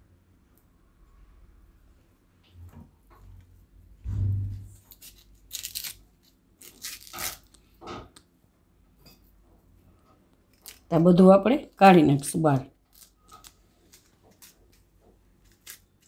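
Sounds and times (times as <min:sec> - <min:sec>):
spoon scraping fruit shell: 0:04.9 - 0:07.6.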